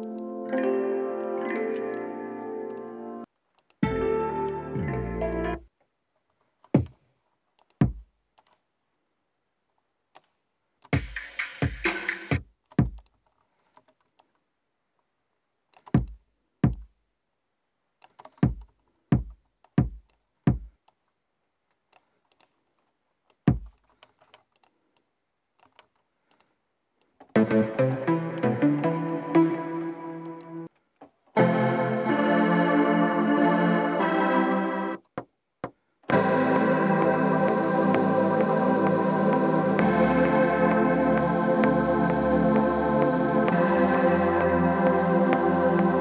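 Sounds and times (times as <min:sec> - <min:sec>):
sustained synthesizer notes: 0:27.4 - 0:30.7, 0:31.4 - 0:35.0, 0:36.1 - 0:46.0.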